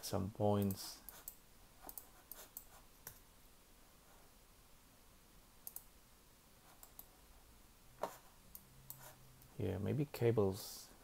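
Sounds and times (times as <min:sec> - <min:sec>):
computer mouse clicks: 0:00.6 - 0:03.2, 0:05.6 - 0:05.9, 0:06.8 - 0:07.1.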